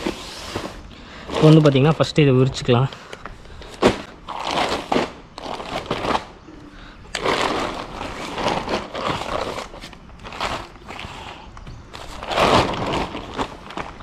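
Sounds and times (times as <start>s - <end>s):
tent fabric rustling: 7.2s - 14.0s.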